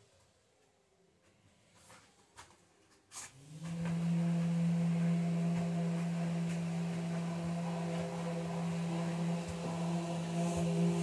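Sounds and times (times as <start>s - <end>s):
workshop machine humming: 3.3s - 11.0s.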